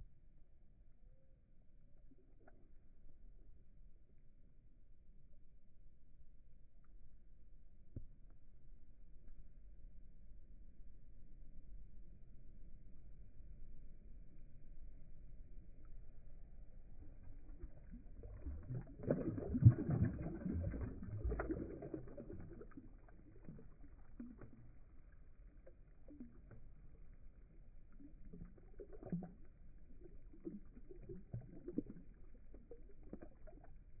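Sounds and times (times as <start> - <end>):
fish splashing in water: 17.2 - 33.7.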